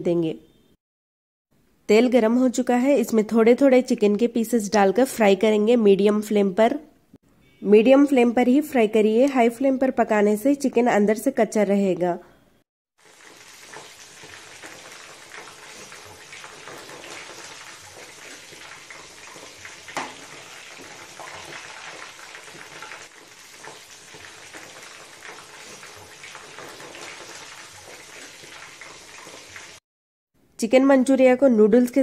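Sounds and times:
chicken deep-frying in hot oil: 13.0s - 29.8s.

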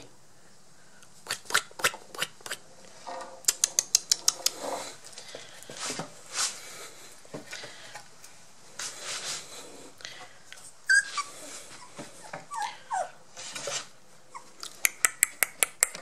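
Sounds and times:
sharp clicks: 3.5s - 4.6s.

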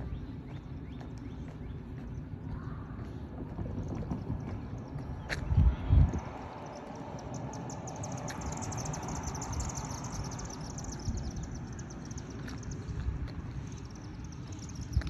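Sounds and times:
low rumble: 1.6s - 7.8s.

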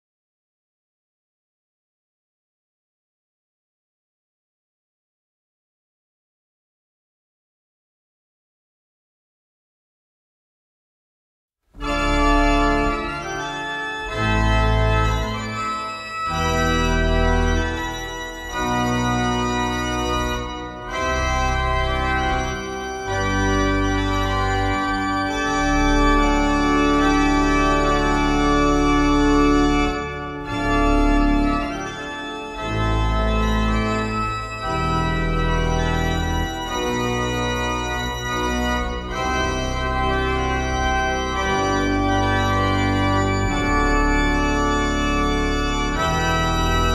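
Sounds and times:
pipe organ chords: 11.8s - 46.9s.

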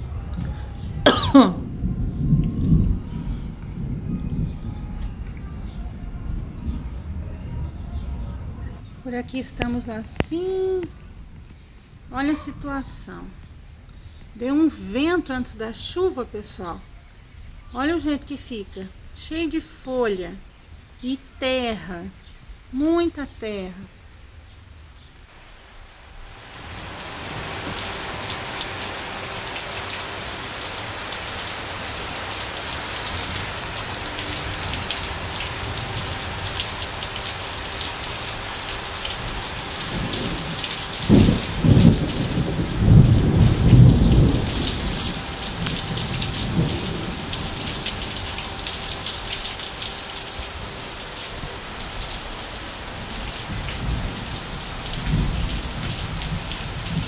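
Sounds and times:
thunder clap and rumble: 0.0s - 9.8s, 38.6s - 48.3s, 53.0s - 57.0s
heavy rain on tiles: 0.0s - 57.0s.

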